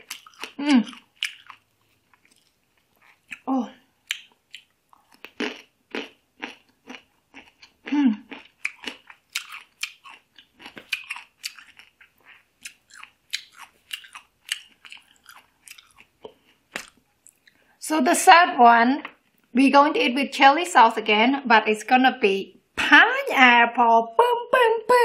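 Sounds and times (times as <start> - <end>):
crunchy chewing of fruit: 0.0 - 17.6.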